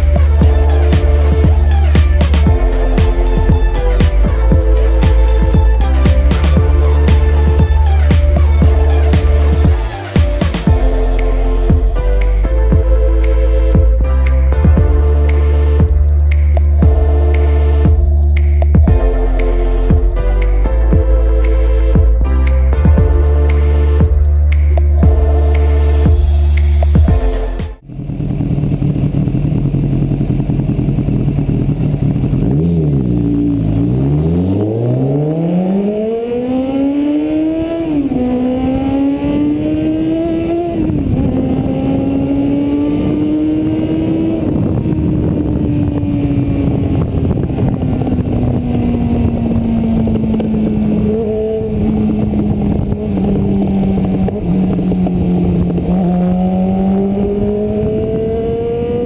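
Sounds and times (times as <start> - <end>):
motorcycle engine revving: 0.0 - 12.0, 24.0 - 59.0.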